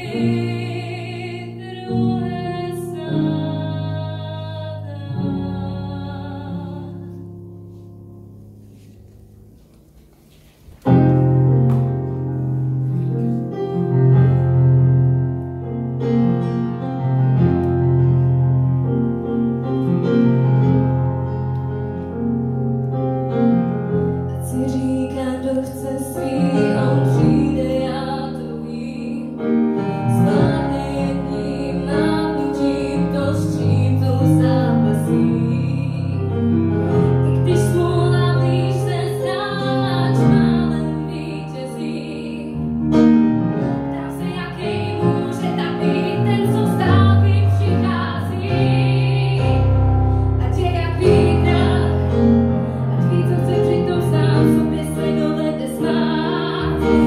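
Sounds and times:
woman singing slow song: 0:00.0 - 0:07.3, 0:24.4 - 0:36.6, 0:37.2 - 0:42.7, 0:43.8 - 0:57.0
piano chords: 0:00.0 - 0:57.0.

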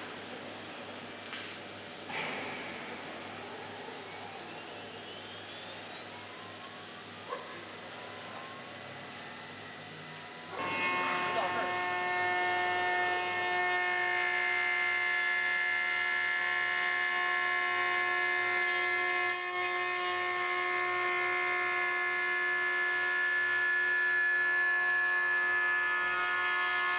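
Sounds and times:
milling machine spindle whine: 0:00.0 - 0:26.9.

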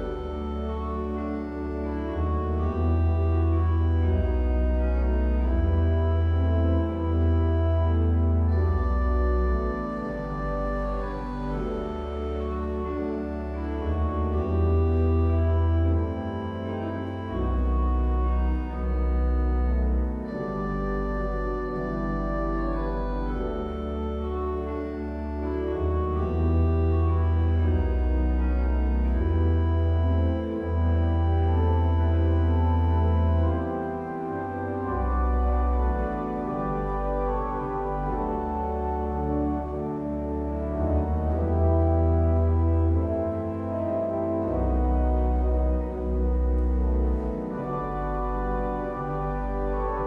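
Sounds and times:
church organ chords: 0:00.0 - 0:50.0.

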